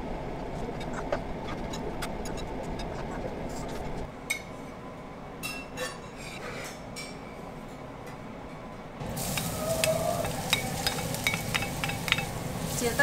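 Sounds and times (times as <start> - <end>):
ceramic plate clinking: 10.5 - 12.4.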